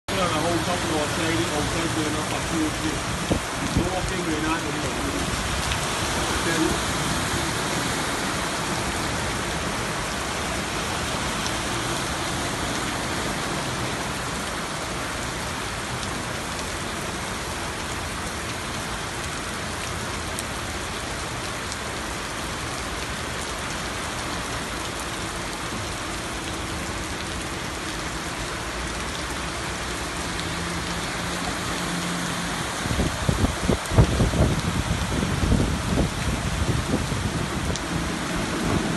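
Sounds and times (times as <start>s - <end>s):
heavy rain pouring: 0.0s - 38.9s
water surging and splashing: 0.0s - 38.9s.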